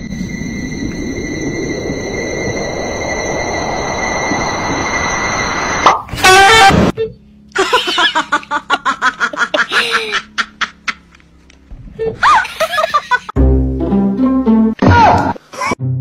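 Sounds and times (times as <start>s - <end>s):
person laughing hard: 7.6s - 11.2s, 12.1s - 13.4s.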